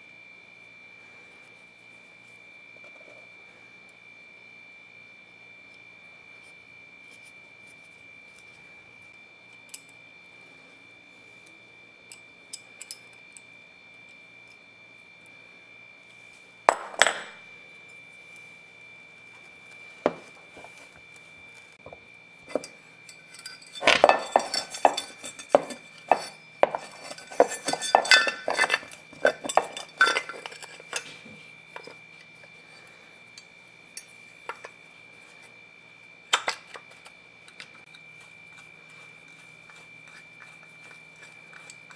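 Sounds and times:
metal parts rattling and clinking: 0:22.5 - 0:31.2.

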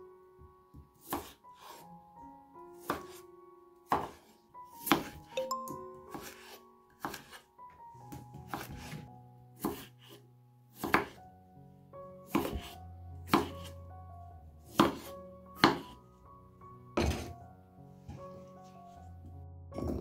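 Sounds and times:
knife cutting potatoes: 0:01.0 - 0:01.8, 0:02.8 - 0:03.2, 0:03.9 - 0:05.2, 0:06.1 - 0:07.4, 0:08.1 - 0:10.2, 0:10.8 - 0:11.2, 0:12.3 - 0:13.8, 0:14.7 - 0:16.0
knife knocking on wooden board: 0:17.0 - 0:17.3.

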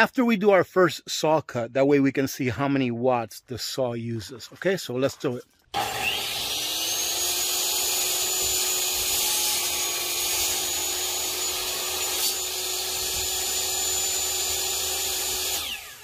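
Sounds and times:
electric saw whining: 0:05.8 - 0:16.0.

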